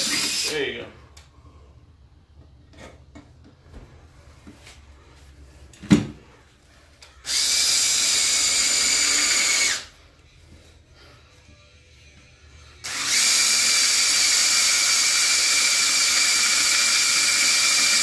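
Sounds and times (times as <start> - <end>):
cordless drill drilling metal: 0.0 - 0.6, 7.2 - 9.9, 12.8 - 18.0.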